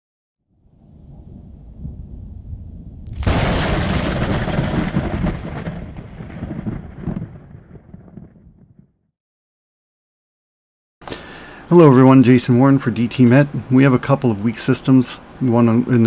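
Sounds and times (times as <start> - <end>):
thunder rumbling and cracking: 1.0 - 9.0.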